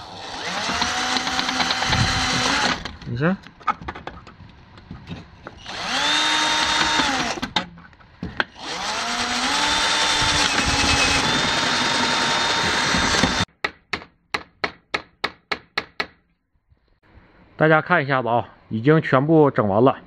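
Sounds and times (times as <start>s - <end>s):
drill boring through sheet metal: 0.0s - 3.0s, 5.6s - 7.6s, 8.5s - 13.5s.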